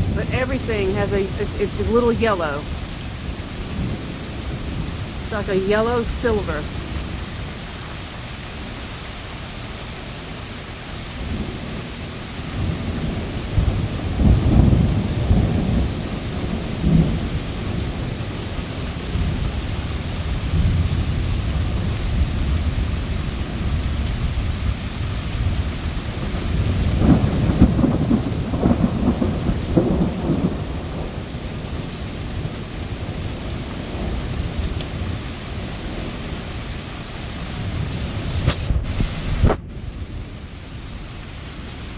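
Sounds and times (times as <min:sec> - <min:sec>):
rain falling: 0:00.0 - 0:41.9
low thunder rumbling: 0:11.2 - 0:35.2.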